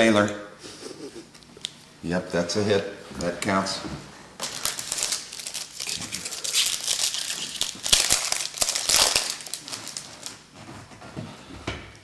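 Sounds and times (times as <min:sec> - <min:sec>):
card pack wrapper crinkling: 0:04.4 - 0:10.4.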